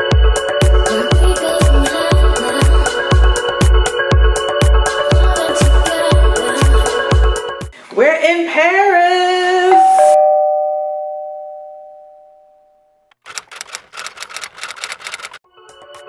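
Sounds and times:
bell-like two-note chime: 0:09.7 - 0:12.9
clicks and crackles: 0:13.1 - 0:16.0.

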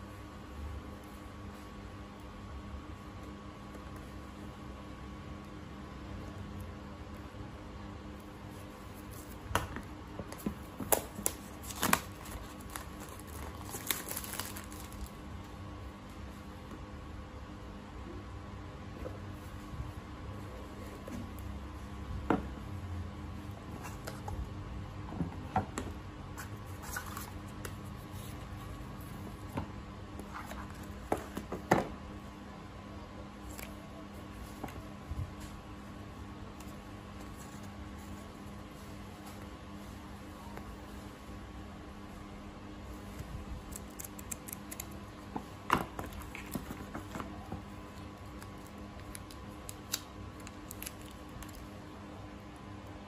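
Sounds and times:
faint steady hum: 0:00.0 - 0:53.0
cardboard box and paper rustling: 0:10.3 - 0:15.2
plastic shrink wrap crinkling: 0:10.6 - 0:15.3.

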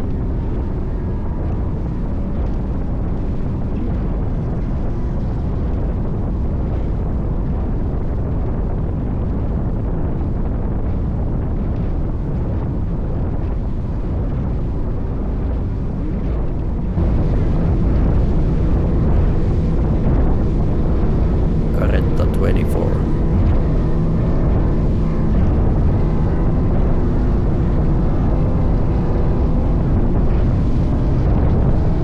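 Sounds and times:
wind rumble on microphone: 0:00.0 - 0:21.4, 0:24.1 - 0:32.0.

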